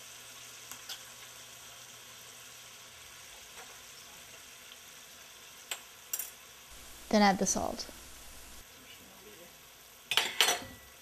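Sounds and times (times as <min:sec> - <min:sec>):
gravy simmering in frying pan: 0:00.0 - 0:07.2.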